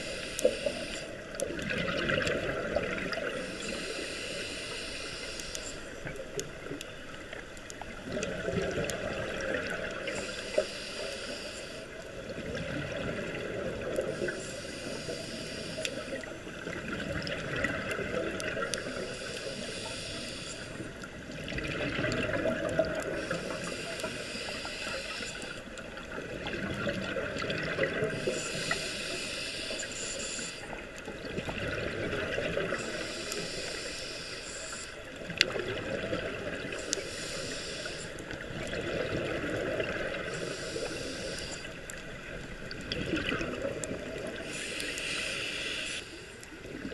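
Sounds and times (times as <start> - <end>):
regulator hissing inhalation: 0.0 - 1.3, 3.4 - 5.9, 10.1 - 12.0, 14.2 - 16.3, 18.8 - 20.8, 23.0 - 25.7, 28.1 - 30.8, 32.7 - 35.0, 36.7 - 38.3, 40.2 - 41.8, 44.1 - 46.4.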